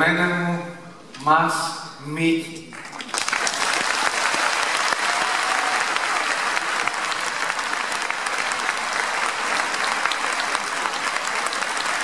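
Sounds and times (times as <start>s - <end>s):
crowd applauding: 2.7s - 12.0s.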